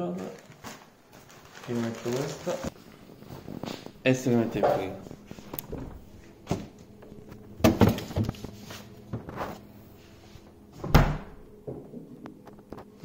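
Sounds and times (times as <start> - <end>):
fridge door shutting: 3.7 - 6.8, 7.4 - 8.4, 10.7 - 12.1.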